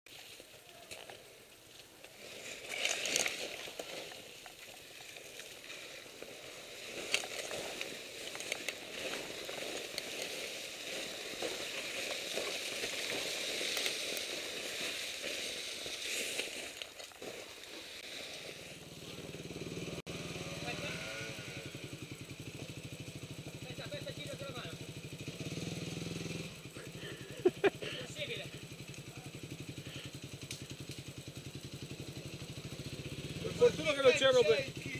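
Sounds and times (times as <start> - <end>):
crunching and rustling in snow: 0.1 - 18.9.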